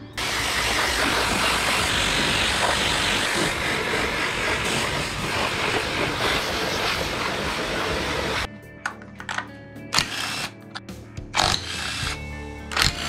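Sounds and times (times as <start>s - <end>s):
pressure washer spraying water: 0.2s - 8.5s.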